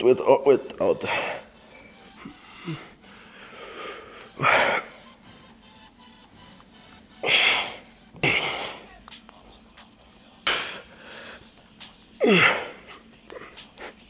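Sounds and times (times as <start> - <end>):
man grunting: 12.2 - 12.9.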